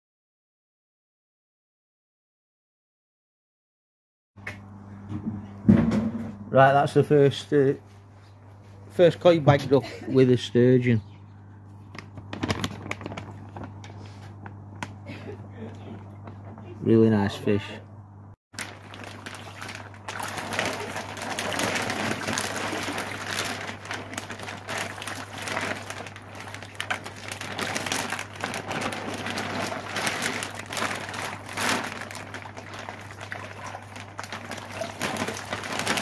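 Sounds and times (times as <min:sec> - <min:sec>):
low steady hum: 0:04.4 - 0:36.0
plastic bags crinkling: 0:11.9 - 0:16.3, 0:18.6 - 0:36.0
pond water splashing: 0:18.6 - 0:36.0.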